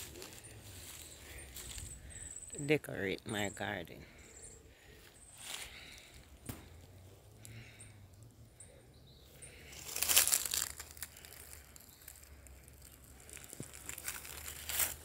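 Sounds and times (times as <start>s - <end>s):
crinkly rustling: 0.0s - 2.0s, 9.7s - 15.0s.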